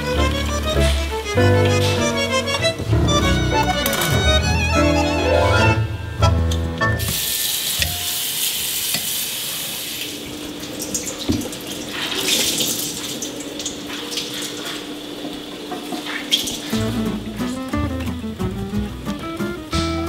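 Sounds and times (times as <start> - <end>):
violin music: 0.0 - 7.2
faucet running into sink: 7.0 - 16.7.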